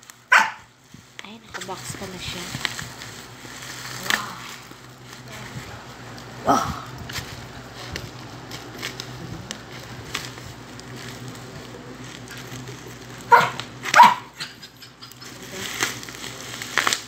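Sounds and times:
dog barking: 0.3 - 0.7, 13.3 - 14.5
scissors cutting plastic bag: 1.2 - 5.6, 6.2 - 17.0.

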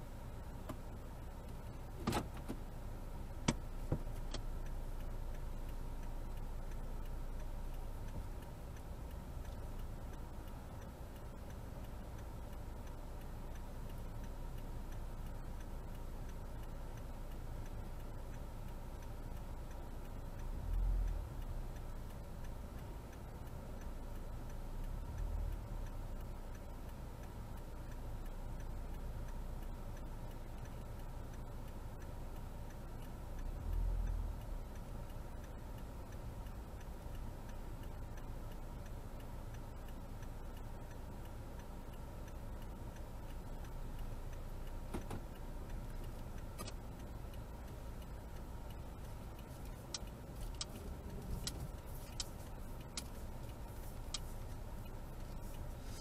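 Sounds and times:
low engine and road hum: 0.0 - 56.0
turn signal ticking: 0.0 - 56.0
sharp clicks: 0.1 - 56.0.

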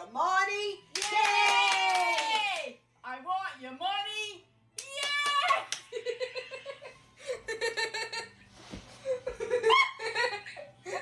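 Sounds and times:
women laughing hard: 5.9 - 8.4, 9.1 - 11.0.

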